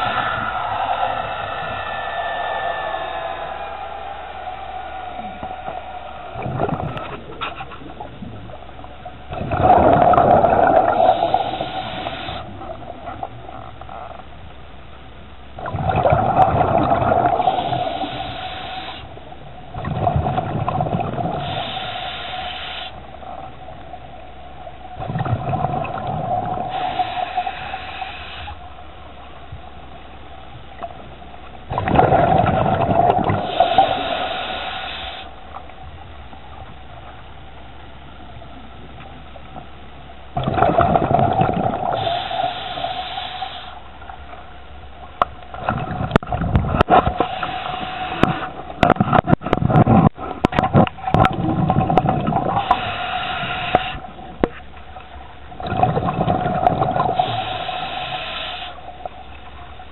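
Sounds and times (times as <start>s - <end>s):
diver breathing through regulator: 9.9s - 12.5s, 17.2s - 19.1s, 21.2s - 23.0s, 26.5s - 28.6s, 33.0s - 35.4s, 41.7s - 43.9s, 46.9s - 48.6s, 52.4s - 54.1s, 56.8s - 58.9s.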